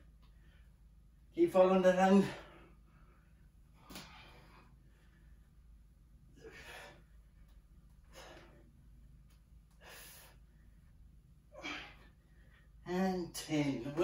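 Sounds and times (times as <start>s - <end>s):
faint low room hum: 0.0s - 14.0s.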